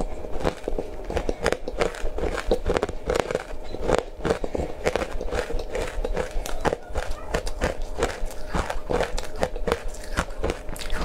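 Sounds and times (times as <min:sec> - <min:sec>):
crunching and chewing ice: 0:00.0 - 0:11.0.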